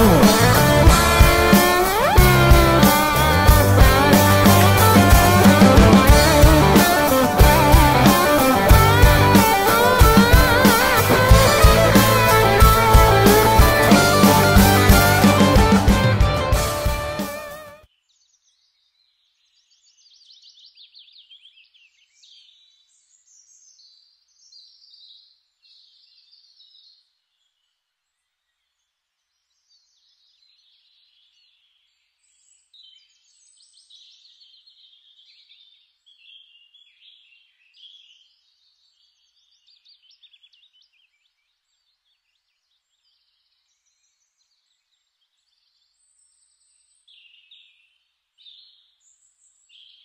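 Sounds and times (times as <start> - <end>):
faint birdsong chirps and trills: 17.9 - 50.0.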